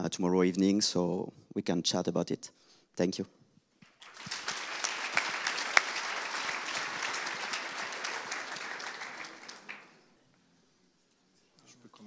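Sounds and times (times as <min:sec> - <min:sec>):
audience applauding: 0:03.8 - 0:10.1.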